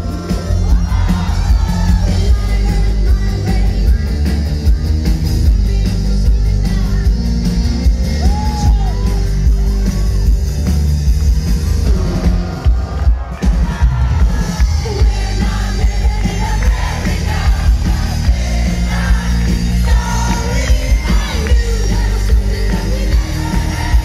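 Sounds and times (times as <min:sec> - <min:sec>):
live rock band playing: 0:00.0 - 0:24.0
woman singing: 0:00.1 - 0:07.3, 0:14.5 - 0:24.0.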